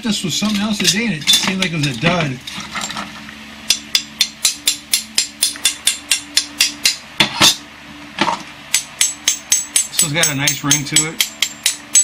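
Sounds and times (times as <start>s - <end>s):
fan humming faintly: 0.0s - 12.0s
metal rod tapping ringing blade: 8.7s - 12.0s.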